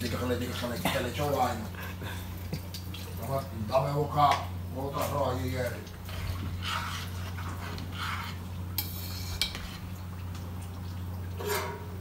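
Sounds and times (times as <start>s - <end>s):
metal spoon scraping pot: 6.1s - 9.9s, 11.4s - 12.0s.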